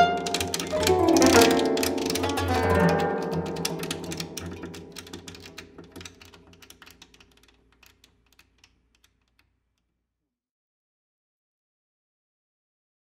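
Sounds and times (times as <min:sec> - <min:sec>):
koto clicking strokes: 0:00.0 - 0:09.5.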